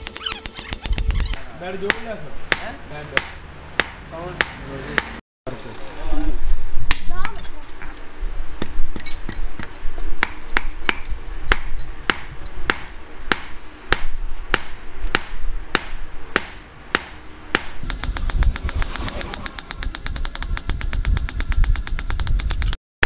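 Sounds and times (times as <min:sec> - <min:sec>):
hammer striking steel on anvil: 0:00.0 - 0:05.2, 0:09.0 - 0:22.0.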